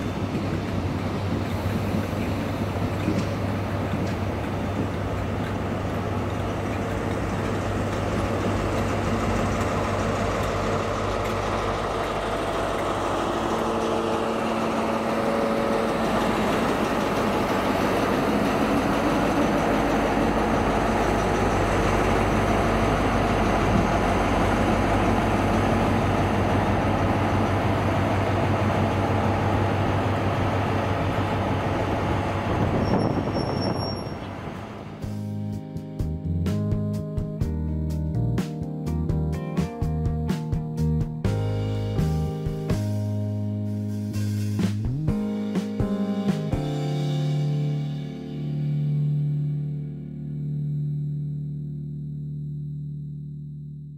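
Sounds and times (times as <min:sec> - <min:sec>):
train coaches rumbling by: 0:00.0 - 0:35.2
low engine hum: 0:00.0 - 0:35.5, 0:48.7 - 0:53.9
diesel train engine passing: 0:00.0 - 0:36.6.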